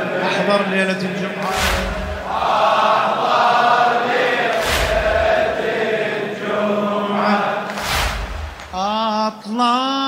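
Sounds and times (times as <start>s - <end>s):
men chanting a lament: 0.0s - 10.0s
collective chest-beats: 1.4s - 3.0s, 4.2s - 5.9s, 7.7s - 9.0s.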